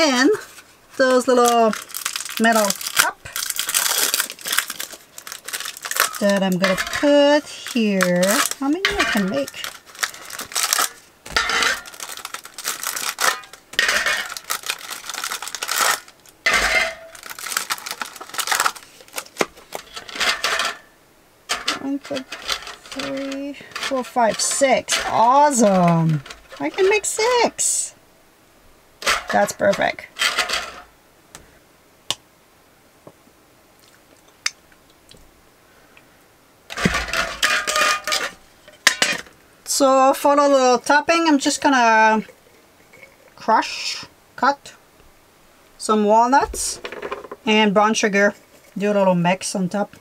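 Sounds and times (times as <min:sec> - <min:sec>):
foil cups crinkling: 0:00.0 - 0:28.0, 0:29.0 - 0:31.5, 0:36.7 - 0:44.1.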